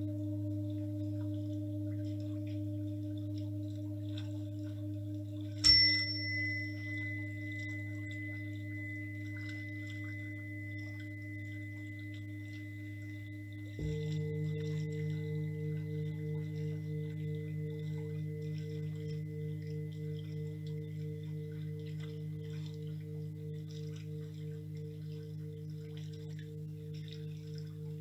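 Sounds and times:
low drone of held tones: 0.0s - 28.0s
bright metal chime ringing: 5.6s - 28.0s.

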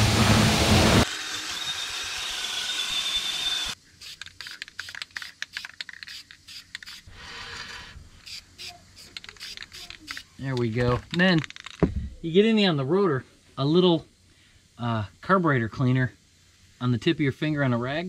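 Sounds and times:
pressure washer spray hissing: 4.0s - 10.3s.

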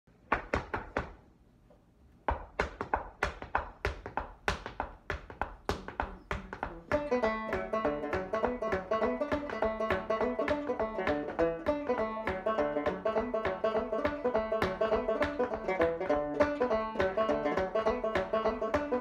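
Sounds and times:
shoes tapping on wooden floor: 0.3s - 1.2s, 2.2s - 16.1s
banjo playing a reel: 6.7s - 19.0s.

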